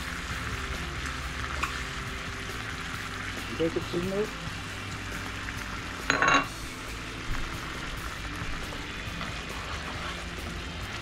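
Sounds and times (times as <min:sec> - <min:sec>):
sauce sizzling in a frying pan: 0:00.0 - 0:11.0
utensil ringing clink: 0:06.1 - 0:06.5
utensil stirring: 0:08.4 - 0:11.0.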